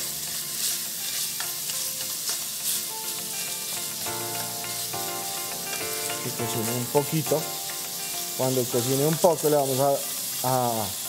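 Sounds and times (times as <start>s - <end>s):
spatula scraping a pan: 0.0s - 4.0s
meat sizzling in a frying pan: 0.0s - 11.0s.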